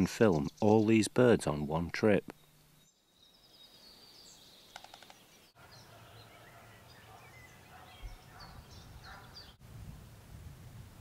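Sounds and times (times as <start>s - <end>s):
small songbirds chirping: 0.0s - 1.2s, 2.2s - 9.6s.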